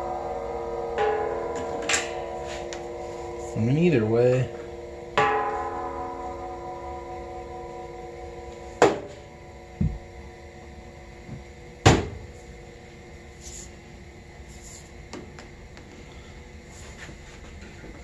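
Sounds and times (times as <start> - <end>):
sharp metal knocks with ringing: 0.0 - 10.1.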